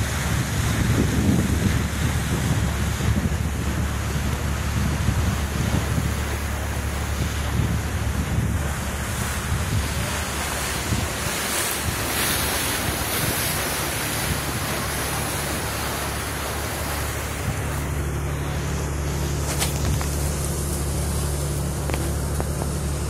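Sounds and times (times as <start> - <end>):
low engine drone: 0.0 - 23.0
water rushing along hull: 0.0 - 23.0
wind buffeting microphone: 0.0 - 23.0.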